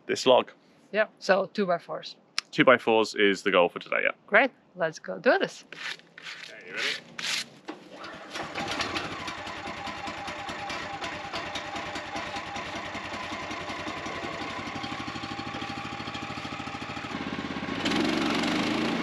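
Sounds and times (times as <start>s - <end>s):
gas engine starting and running: 6.7s - 19.0s.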